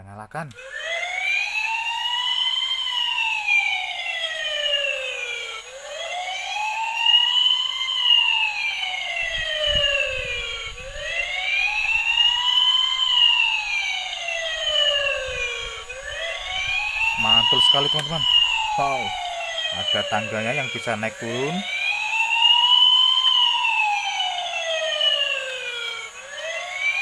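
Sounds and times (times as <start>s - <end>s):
toy siren wailing: 0.5s - 27.0s.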